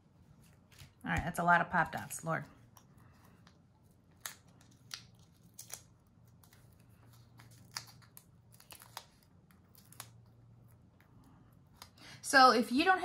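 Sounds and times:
paper clicks and crinkles: 2.0 - 12.0.

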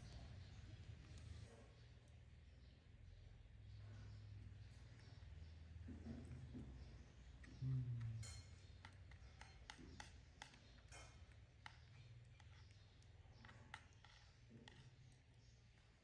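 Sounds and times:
spoon tapping plastic bowl: 8.0 - 15.5.

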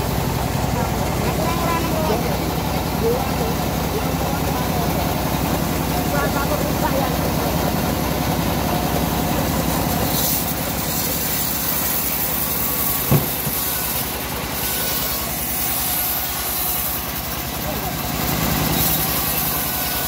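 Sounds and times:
diesel engine running steadily: 0.0 - 20.0
short knock: 13.1 - 13.6.

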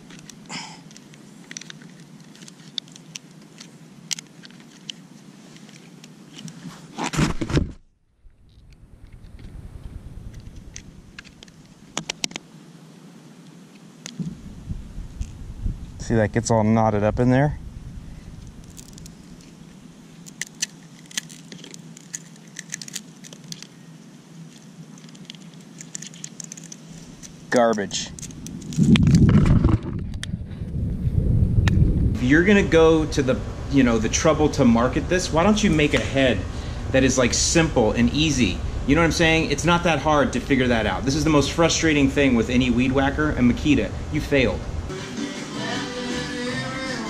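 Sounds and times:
steady low rumble: 0.0 - 1.8, 8.2 - 12.0, 14.2 - 20.4, 26.7 - 45.0
small plastic clicks: 20.2 - 23.7, 24.5 - 27.4.

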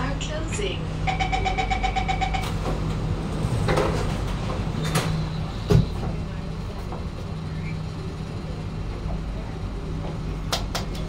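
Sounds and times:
train carriage hum: 0.0 - 11.0
rapid high door chime beeps: 1.1 - 2.6
doors sliding shut: 2.4 - 6.3.

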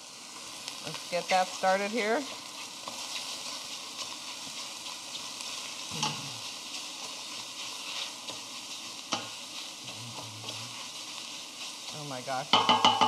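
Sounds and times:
meat sizzling in a pot: 0.0 - 13.0
wooden spoon knocking on pot: 12.5 - 13.0.

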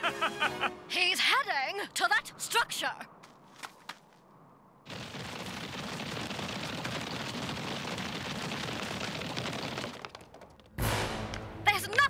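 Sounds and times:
cartoon stampede of running feet: 4.9 - 12.0.

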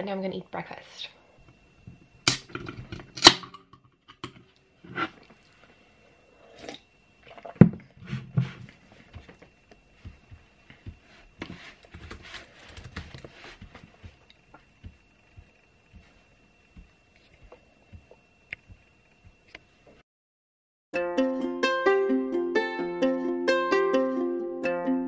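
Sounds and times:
faint high whine: 0.0 - 20.0
laptop keyboard typing: 11.9 - 13.3.

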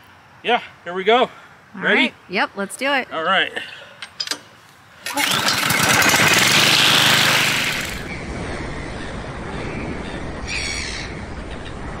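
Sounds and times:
string trimmer engine running: 5.0 - 8.0.

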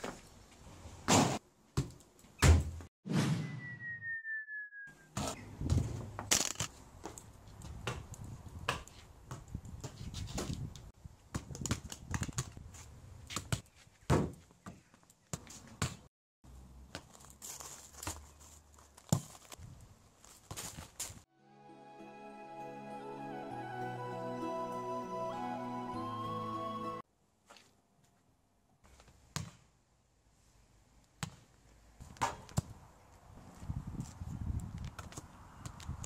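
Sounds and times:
short whistle-like tone: 3.3 - 5.2.

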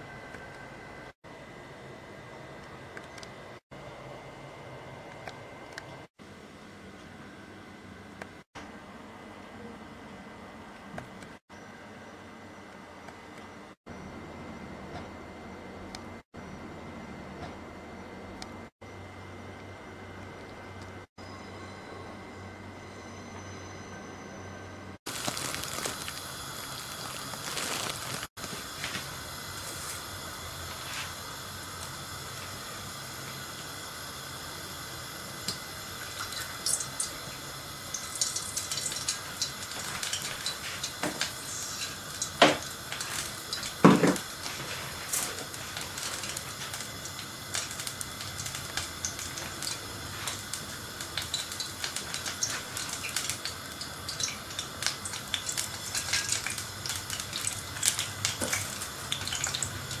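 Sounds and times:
oil crackling: 25.1 - 33.7, 35.4 - 60.0
gas burner hissing: 25.1 - 60.0.

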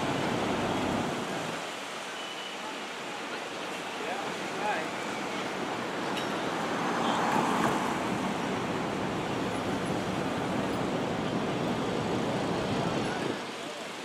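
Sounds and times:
city street traffic: 0.0 - 14.0.

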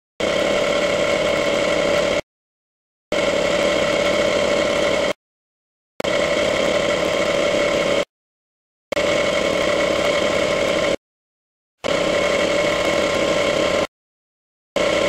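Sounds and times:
motor-driven machine humming: 0.2 - 2.2, 3.1 - 5.2, 6.0 - 8.1, 8.9 - 11.0, 11.8 - 13.9, 14.8 - 15.0.

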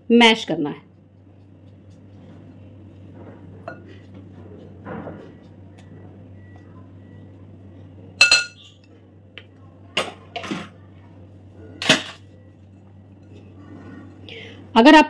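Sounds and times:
utensil clinking glass bowl: 8.2 - 8.7.

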